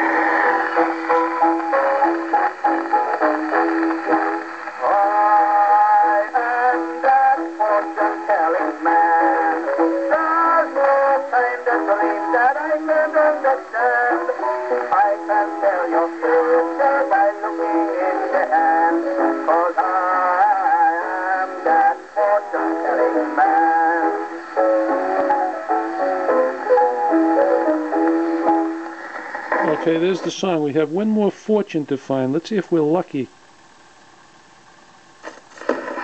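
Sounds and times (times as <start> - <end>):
gramophone song with accompaniment: 0.0 - 33.4
record surface hiss: 0.0 - 36.0.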